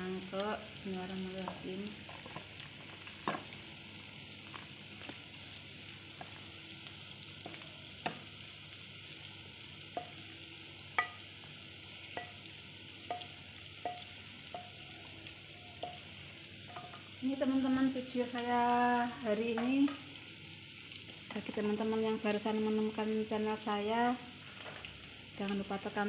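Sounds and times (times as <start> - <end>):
sharp taps ringing off pan: 6.1 - 17.2, 19.4 - 20.2.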